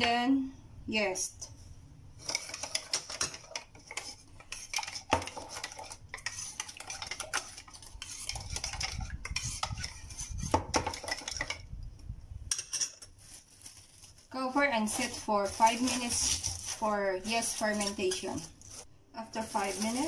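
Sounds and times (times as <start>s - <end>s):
metal spoon stirring in plastic jug: 2.2s - 11.7s, 14.6s - 20.0s.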